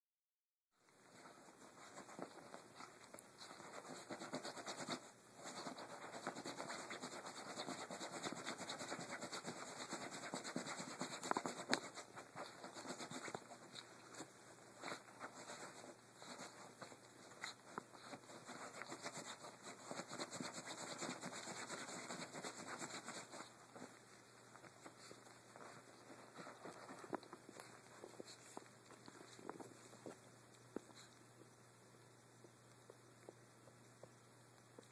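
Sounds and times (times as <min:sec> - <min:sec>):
dog scratching bedding: 0:01.2 - 0:23.9.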